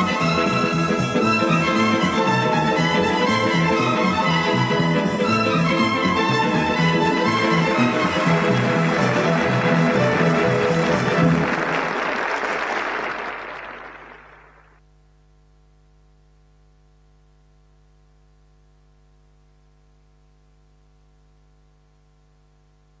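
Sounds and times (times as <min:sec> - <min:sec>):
group hand clapping: 0:06.2 - 0:14.8
faint electrical hum: 0:14.2 - 0:23.0.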